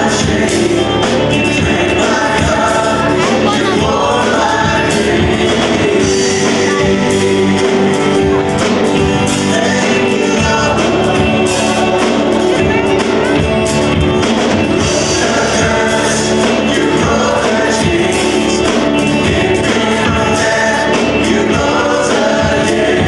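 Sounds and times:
drums: 0.0s - 23.0s
electric bass: 0.0s - 23.0s
voices singing: 0.0s - 23.0s.

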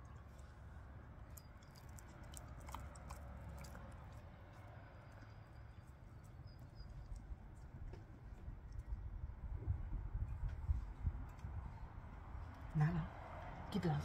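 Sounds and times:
dog chewing meat: 1.2s - 8.9s.

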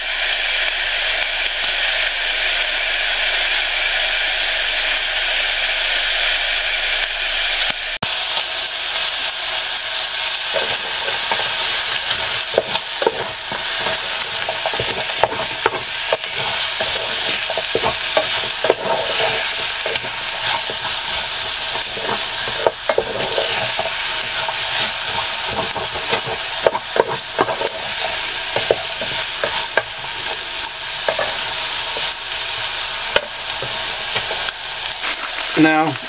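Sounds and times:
food sizzling in a pan: 0.0s - 36.0s
wooden spoon scraping a pan: 10.2s - 36.0s.

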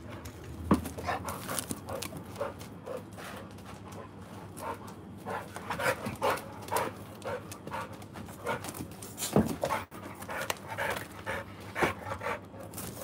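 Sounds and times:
dog panting: 1.0s - 8.8s, 9.4s - 12.7s.

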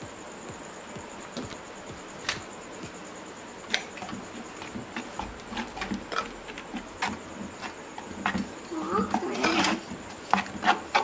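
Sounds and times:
faint high whine: 0.0s - 11.0s
spatula scraping clay pot: 3.9s - 11.0s.

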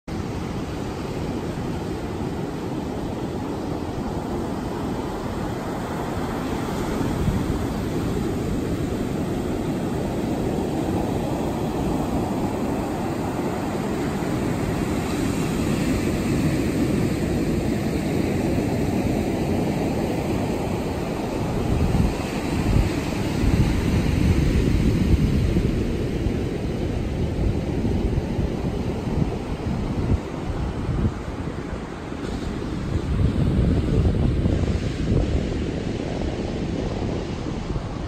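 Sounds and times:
wind rumble on microphone: 0.1s - 38.0s.

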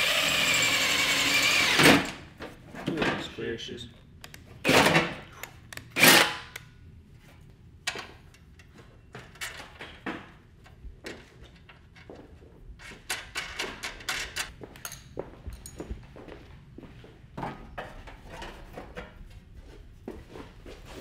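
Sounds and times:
drill biting through sheet metal: 0.0s - 2.1s, 6.0s - 6.5s.

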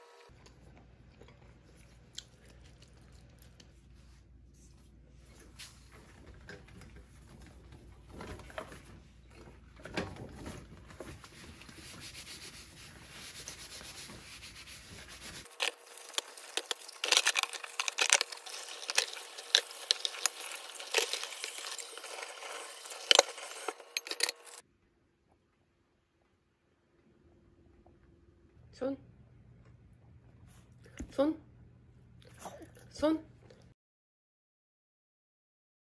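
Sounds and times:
gloved hands scrubbing dishes: 11.2s - 24.6s.

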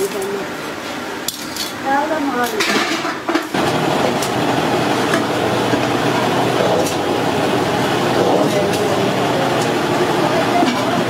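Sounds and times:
drilling machine running: 3.5s - 11.0s.

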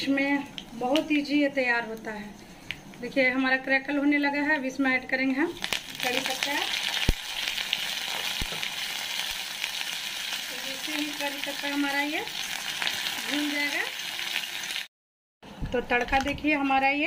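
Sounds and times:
leaves sizzling in hot oil: 5.3s - 14.9s.

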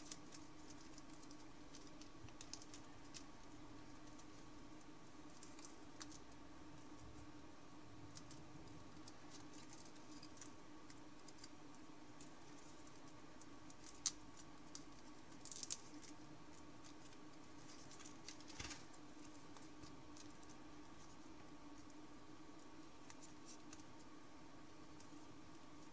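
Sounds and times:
paper crinkling and rustling: 0.0s - 4.5s, 5.3s - 6.4s, 8.1s - 11.6s, 12.2s - 21.9s
sharp paper crackle: 0.0s - 4.5s, 5.3s - 6.4s, 8.1s - 11.6s, 12.2s - 21.9s
faint steady hum: 0.0s - 25.9s.

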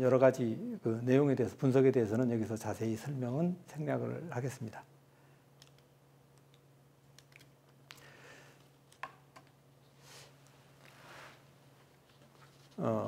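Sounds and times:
faint low hum: 0.0s - 13.0s
soft breaths: 7.9s - 8.8s, 9.8s - 11.6s.

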